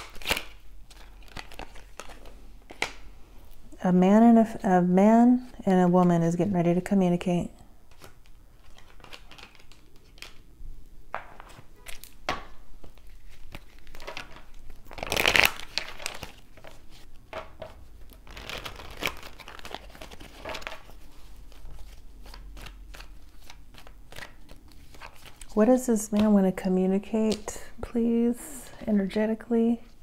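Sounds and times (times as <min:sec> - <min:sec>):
cards shuffling: 0:00.0 - 0:03.0, 0:07.9 - 0:10.4, 0:11.2 - 0:26.3.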